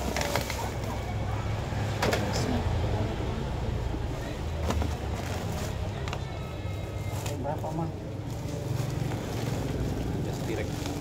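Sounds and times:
rustling plastic sack: 0.0 - 1.1, 4.6 - 11.0.

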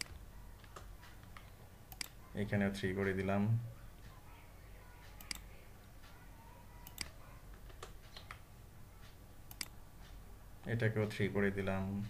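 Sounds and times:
mouse clicks: 9.5 - 9.8.

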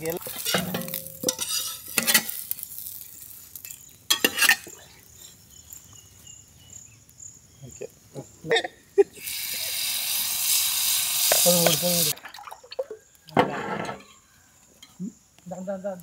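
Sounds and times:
egg sizzling in a pan: 0.0 - 4.7, 9.2 - 12.2
spatula clanking on cookware: 0.3 - 2.4, 4.1 - 4.7.

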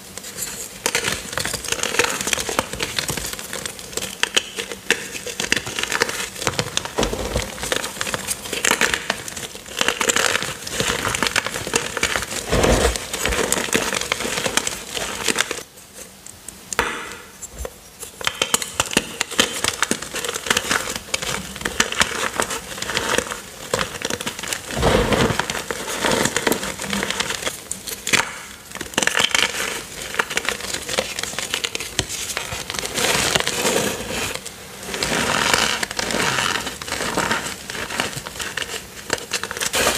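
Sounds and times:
chalk crunching and crackling: 17.4 - 39.9.

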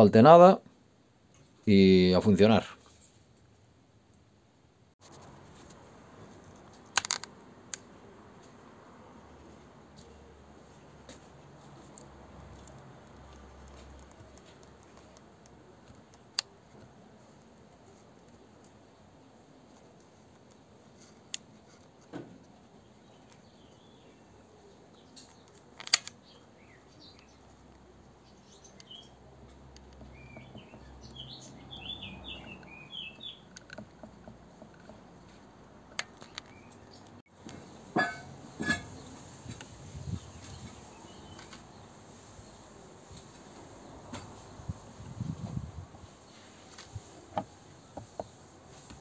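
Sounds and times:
handling clicks and knocks: 6.5 - 7.9, 11.8 - 17.0, 25.0 - 26.4, 28.7 - 31.3, 32.4 - 39.7
bird chirping: 22.8 - 34.1, 36.1 - 37.2, 39.9 - 42.6.

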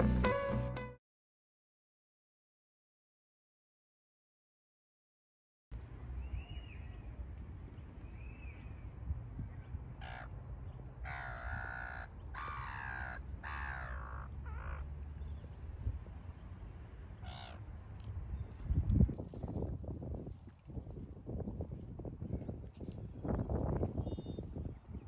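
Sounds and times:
harsh caw-like bird calls: 10.0 - 10.4, 11.0 - 14.9, 17.2 - 17.6.

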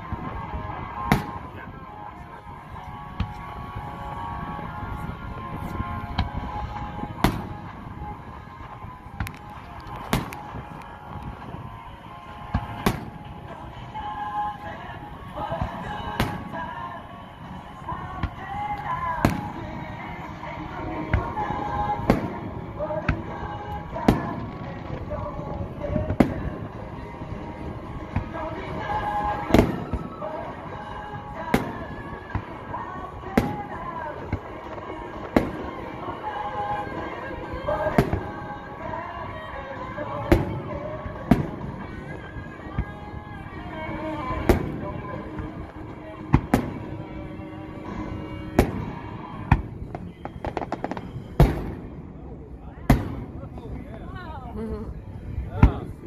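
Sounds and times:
fireworks booming: 0.0 - 54.2
small firework pops: 9.2 - 11.3, 49.5 - 51.8.

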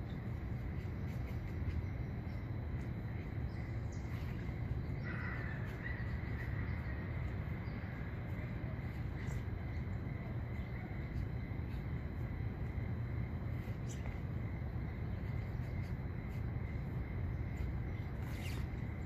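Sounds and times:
low outdoor rumble: 0.0 - 19.0
bird calling: 3.4 - 11.8.

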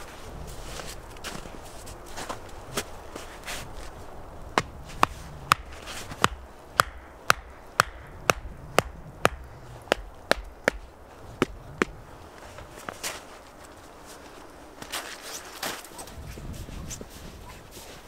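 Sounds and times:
hatchet knocking on wooden stake: 4.6 - 12.0.

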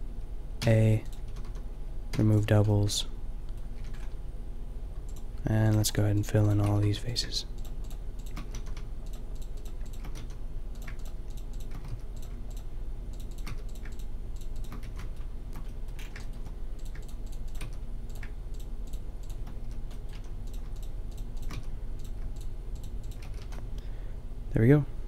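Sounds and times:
steady low hum: 0.0 - 25.0
keyboard keystrokes: 7.8 - 12.6, 13.2 - 23.6.

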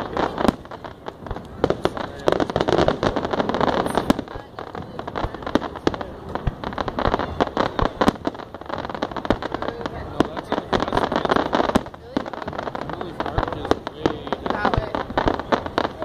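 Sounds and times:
fireworks bursting: 0.0 - 16.0
fireworks crackling: 0.0 - 16.0.

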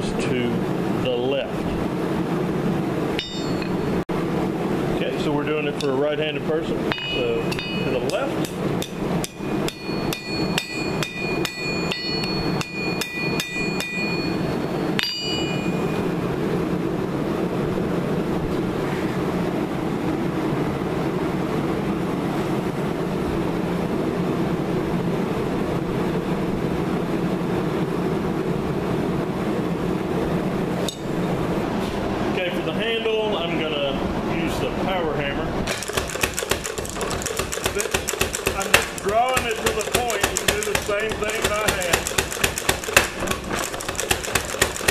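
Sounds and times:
steady background roar: 0.0 - 44.9
hammer ringing on anvil: 3.2 - 4.0, 6.8 - 16.1.

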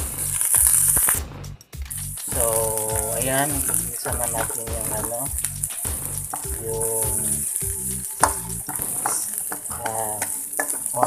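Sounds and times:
onions sizzling in oil: 2.0 - 11.0
spatula stirring in pan: 3.4 - 11.0.

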